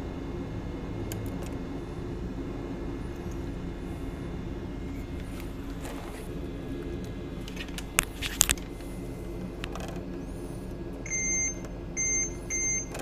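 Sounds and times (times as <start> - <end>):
low equipment hum: 0.0 - 13.0
multimeter continuity beep: 11.0 - 13.0.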